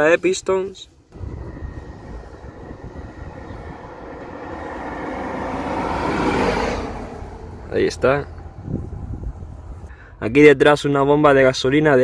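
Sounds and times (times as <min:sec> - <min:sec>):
vehicle passing by rumbling: 0:01.1 - 0:09.9.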